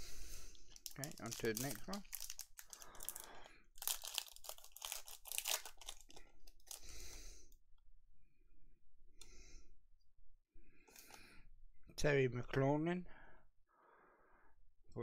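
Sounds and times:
card pack wrapper tearing: 0:00.7 - 0:06.9
cards rustling: 0:00.7 - 0:06.9.

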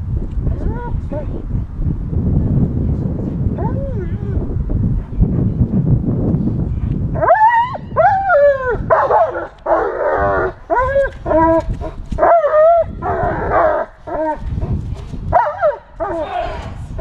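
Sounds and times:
dog barking and yelping: 0:07.2 - 0:14.4, 0:15.3 - 0:16.2.

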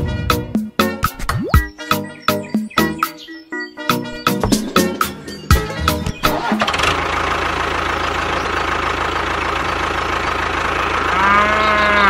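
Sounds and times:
tractor engine idling: 0:04.2 - 0:12.0
cow mooing: 0:11.0 - 0:12.0.

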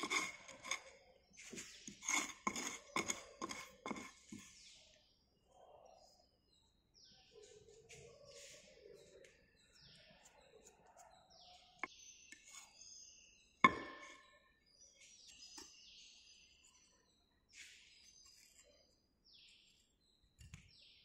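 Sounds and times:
hand tools scraping sand: 0:00.0 - 0:04.3
ringing metallic knock: 0:13.7 - 0:14.3.

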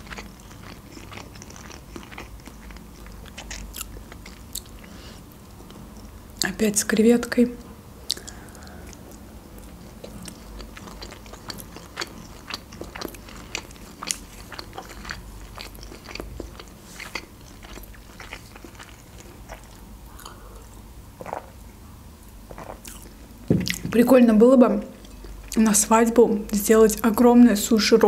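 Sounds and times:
person chewing with wet mouth clicks: 0:00.0 - 0:04.8, 0:08.1 - 0:20.4.

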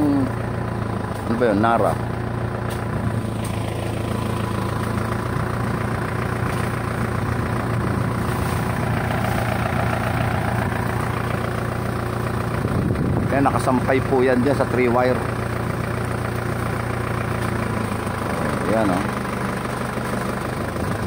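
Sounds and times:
truck engine running: 0:00.0 - 0:21.0.

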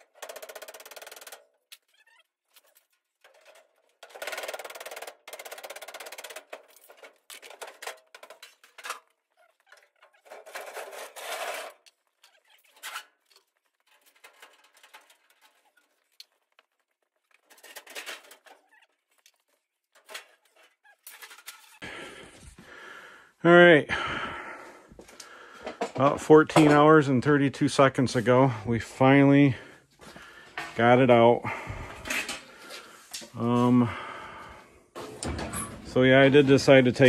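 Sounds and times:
scraping: 0:00.0 - 0:22.0.

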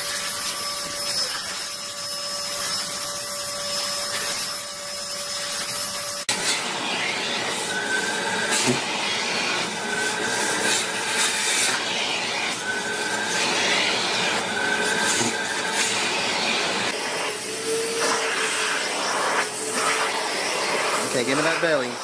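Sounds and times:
vacuum nozzle lower tone: 0:00.0 - 0:22.0
vacuum nozzle whistle: 0:00.0 - 0:22.0
vacuum cleaner rushing: 0:05.8 - 0:22.0.

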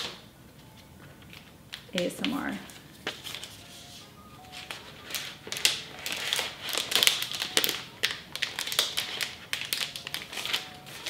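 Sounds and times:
plastic wrap crinkling: 0:00.0 - 0:11.0.

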